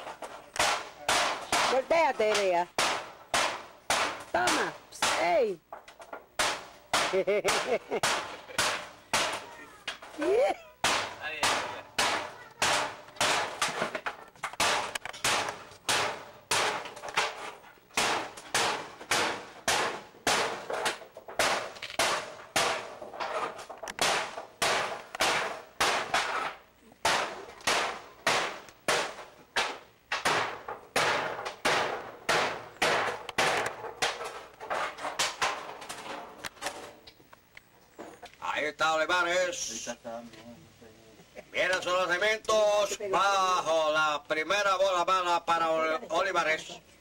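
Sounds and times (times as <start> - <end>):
metal being struck: 10.8 - 14.0, 14.6 - 17.4.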